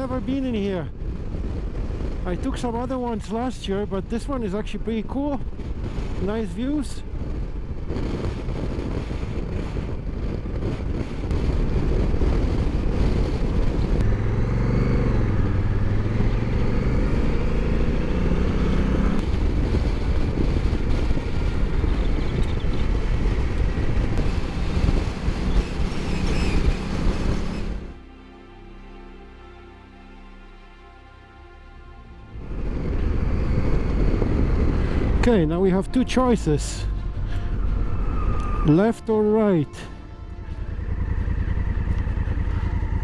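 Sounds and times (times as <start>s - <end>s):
wind rushing: 0.0s - 28.1s, 32.2s - 43.0s
motorcycle engine running: 7.1s - 28.0s, 32.4s - 36.0s, 36.8s - 43.0s.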